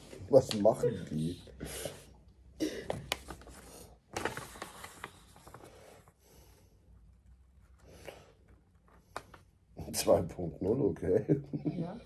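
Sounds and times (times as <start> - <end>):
paper rustling and crinkling: 2.9 - 6.1.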